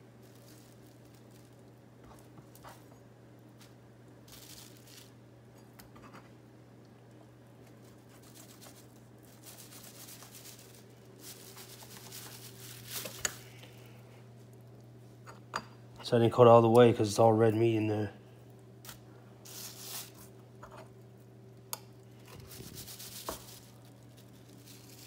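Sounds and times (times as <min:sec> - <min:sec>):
steady low hum: 0:00.0 - 0:25.0
plastic sheeting crinkling: 0:00.2 - 0:02.6, 0:04.3 - 0:05.2, 0:07.8 - 0:13.6, 0:22.5 - 0:25.0.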